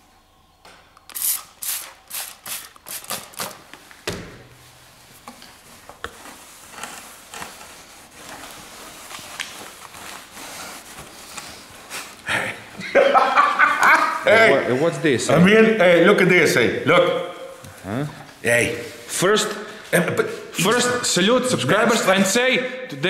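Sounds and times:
cloth rubbing on plastic film: 0:04.9 - 0:12.2.

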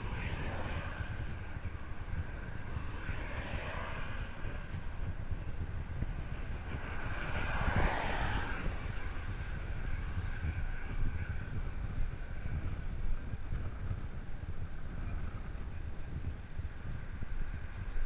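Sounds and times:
wind buffeting microphone: 0:00.0 - 0:18.0
passing car hiss: 0:06.4 - 0:10.4.

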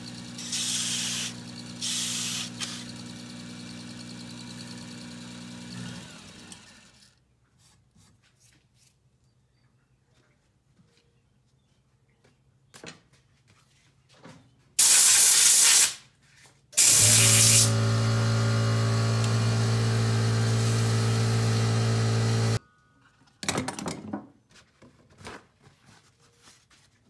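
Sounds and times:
electric lathe motor humming: 0:00.0 - 0:07.0, 0:16.8 - 0:22.6
loud hissing blasts: 0:00.4 - 0:02.8, 0:16.8 - 0:17.9.

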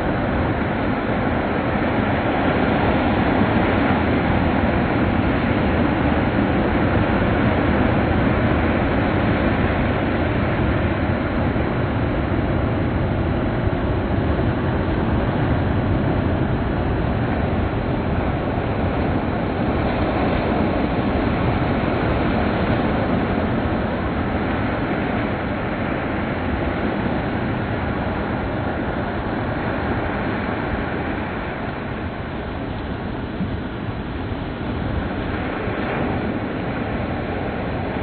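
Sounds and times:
sea waves breaking on shore: 0:00.0 - 0:38.0.

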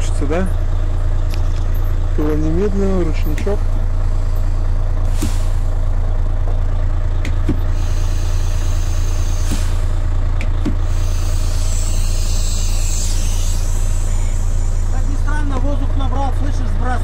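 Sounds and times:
diesel truck engine idling: 0:00.0 - 0:17.0
air brake hissing: 0:04.1 - 0:05.8, 0:07.6 - 0:10.1, 0:10.8 - 0:15.2.

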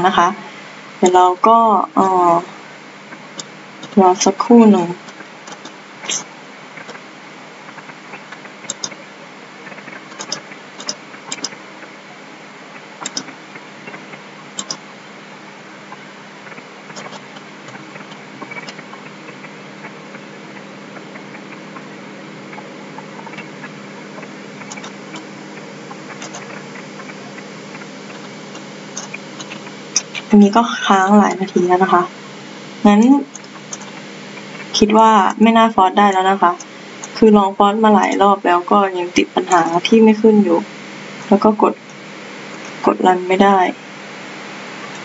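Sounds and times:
steady hum and hiss: 0:00.0 - 0:45.0
computer mouse clicks: 0:05.5 - 0:06.2, 0:08.7 - 0:09.0, 0:09.8 - 0:11.6, 0:13.0 - 0:14.0, 0:14.6 - 0:14.8, 0:24.6 - 0:25.3, 0:26.1 - 0:26.6.

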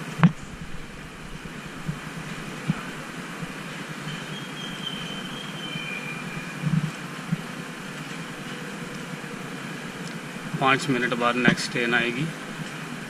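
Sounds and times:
metro station background noise: 0:00.7 - 0:13.0
faint high-pitched squeal: 0:03.6 - 0:06.8.

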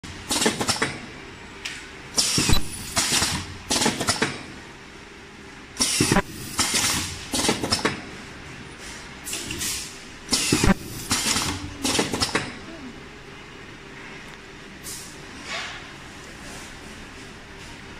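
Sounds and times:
faint machine hum: 0:00.0 - 0:17.9
welding head hissing and clacking: 0:02.2 - 0:04.3, 0:05.8 - 0:07.9.

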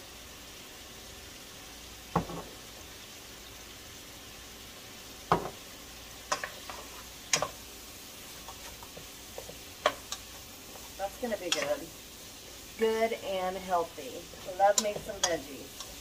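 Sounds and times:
vegetables sizzling in frying pan: 0:00.0 - 0:16.0
knocks against pan: 0:05.3 - 0:05.6.

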